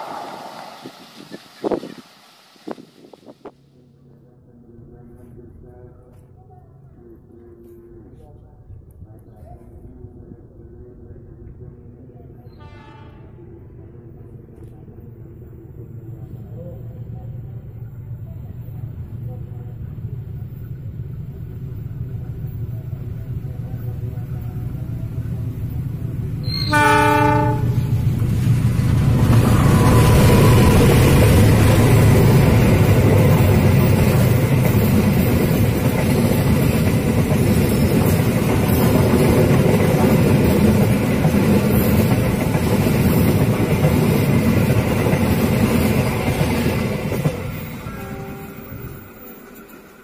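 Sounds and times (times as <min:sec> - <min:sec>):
train rumbling past: 0:00.0 - 0:03.6, 0:12.2 - 0:50.0
train horn: 0:12.6 - 0:13.5, 0:26.4 - 0:28.1, 0:47.8 - 0:49.0.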